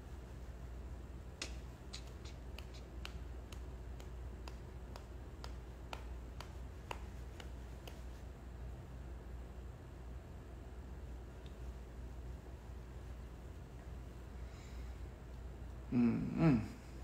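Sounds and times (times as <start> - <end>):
low steady hum: 0.0 - 17.0
light sharp clicks: 1.4 - 8.2.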